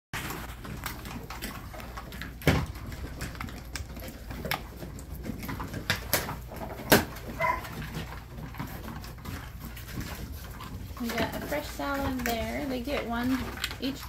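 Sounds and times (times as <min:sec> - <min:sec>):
puppies chewing with cracks: 0:00.2 - 0:14.0
puppy whimper: 0:07.2 - 0:07.9.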